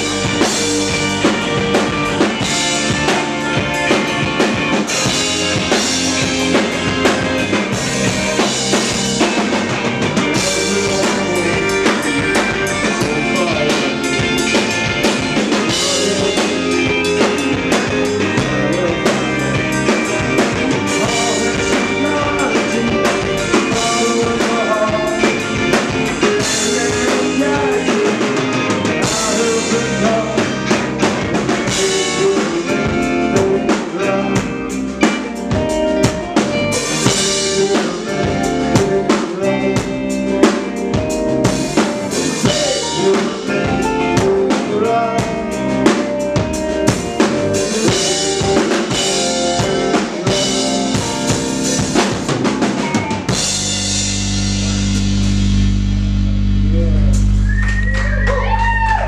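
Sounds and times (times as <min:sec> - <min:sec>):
drum kit hits: 0:00.0 - 0:32.8
rock band playing live: 0:00.0 - 0:59.0.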